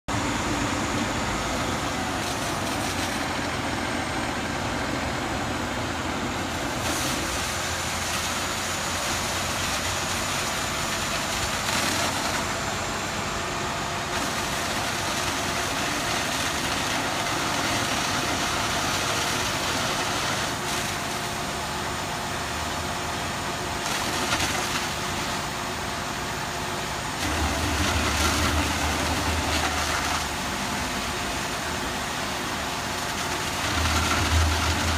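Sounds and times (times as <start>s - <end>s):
fire engine motor running: 0.0s - 34.9s
rushing water from hose: 1.9s - 3.6s, 6.4s - 12.8s, 14.1s - 22.2s, 23.4s - 25.7s, 26.8s - 34.9s.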